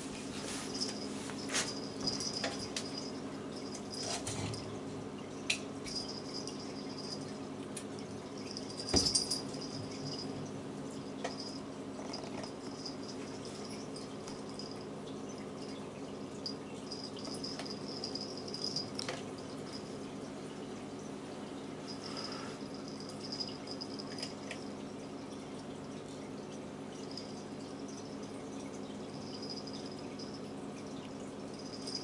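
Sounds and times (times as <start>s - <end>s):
jingling rattle: 0.7s - 4.8s, 5.9s - 7.3s, 8.4s - 10.4s, 11.3s - 14.9s, 16.4s - 20.0s, 21.9s - 24.6s, 31.4s - 32.0s.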